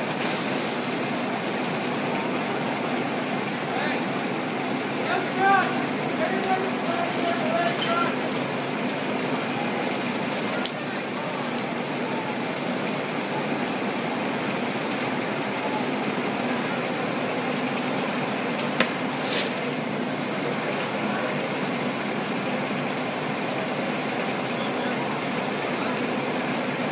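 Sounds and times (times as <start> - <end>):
fire truck engines and pumps: 0.0 - 26.9
short hiss: 0.2 - 1.0, 19.1 - 19.8.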